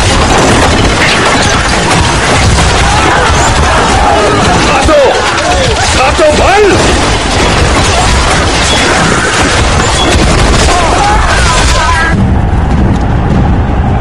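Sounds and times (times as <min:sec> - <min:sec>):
weapons clashing: 0:00.0 - 0:12.1
deep explosion boom: 0:00.0 - 0:14.0
men shouting: 0:02.6 - 0:07.0, 0:10.5 - 0:12.2.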